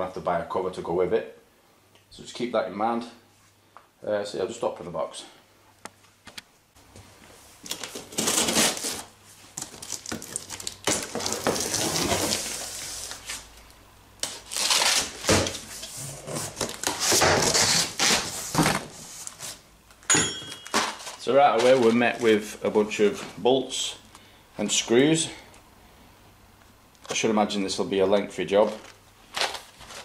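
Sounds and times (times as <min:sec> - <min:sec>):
plastic wrapping crinkling: 0:07.6 - 0:19.6, 0:20.6 - 0:22.5, 0:28.5 - 0:30.0
cardboard flaps scraping: 0:11.0 - 0:13.5, 0:14.5 - 0:19.6.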